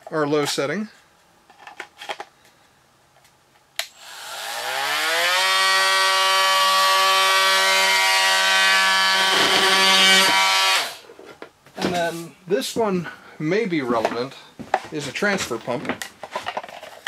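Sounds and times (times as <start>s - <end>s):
oscillating multi-tool motor whine: 3.9s - 11.0s.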